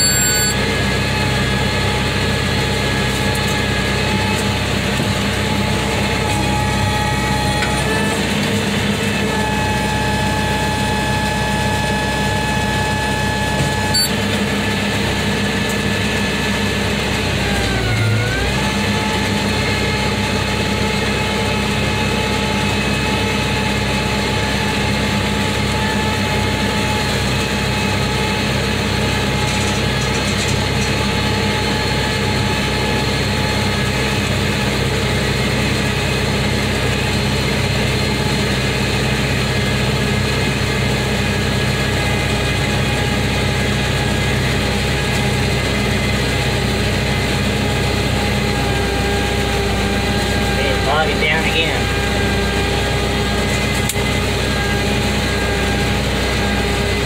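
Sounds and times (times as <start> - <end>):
baler whine: 0.0 - 8.2, 9.1 - 15.8
tractor engine running: 0.0 - 57.0.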